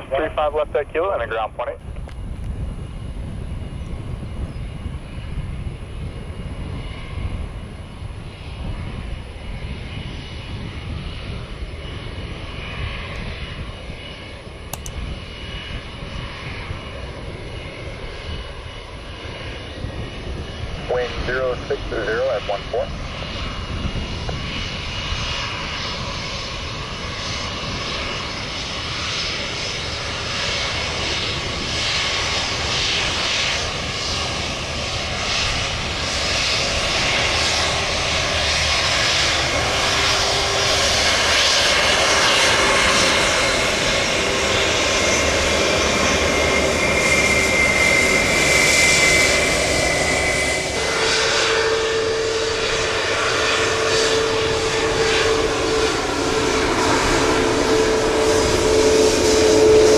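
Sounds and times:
jet airliner engines whining: 0:00.0 - 0:59.9.

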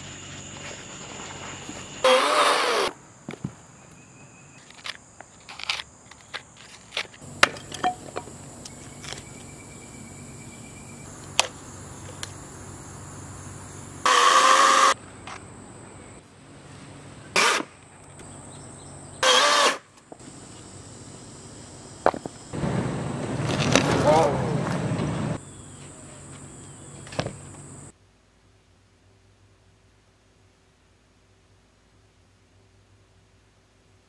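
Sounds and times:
chainsaw cutting wood: 0:02.0 - 0:03.0, 0:14.0 - 0:15.0, 0:17.4 - 0:17.7, 0:19.2 - 0:19.8.

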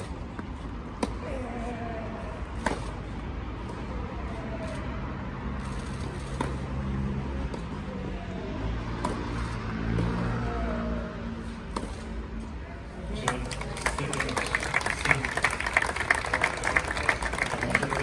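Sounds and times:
distant road traffic hum: 0:00.0 - 0:18.0
tennis ball racket hits: 0:09.0 - 0:10.2.

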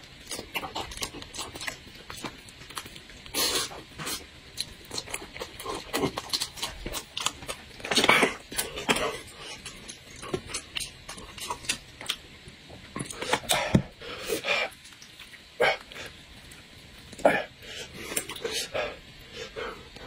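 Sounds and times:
wet chewing: 0:00.2 - 0:12.3.

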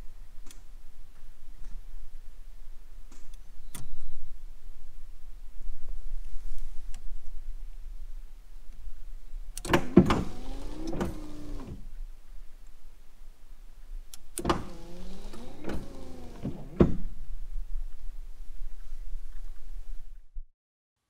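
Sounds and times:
wiper motor clicks: 0:09.6 - 0:11.8, 0:14.2 - 0:17.0
wiper motor whine: 0:10.1 - 0:11.8, 0:14.4 - 0:17.0.

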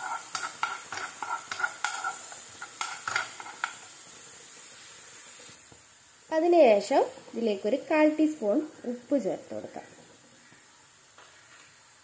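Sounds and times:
spoon scraping frying pan: 0:00.0 - 0:04.0
oil sizzling: 0:00.0 - 0:12.0.

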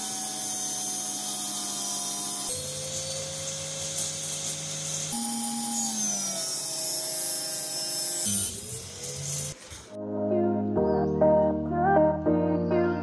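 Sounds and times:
table saw whining: 0:00.0 - 0:10.0.

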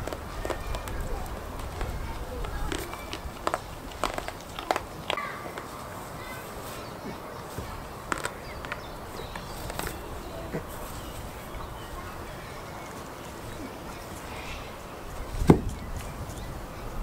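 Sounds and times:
sharp thump: 0:15.4 - 0:15.8.

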